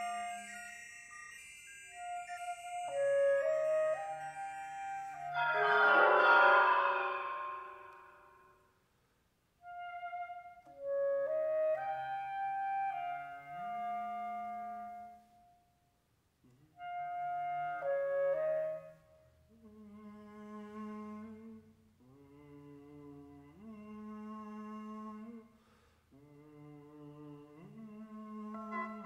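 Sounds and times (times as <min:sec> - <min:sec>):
electronic processed instrumental sounds: 0:05.0 - 0:08.4.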